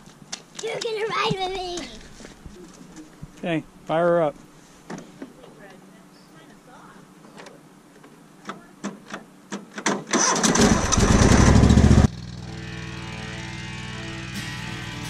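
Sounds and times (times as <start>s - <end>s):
tractor engine cranking and firing: 8.8s - 12.4s
background music: 12.5s - 15.0s.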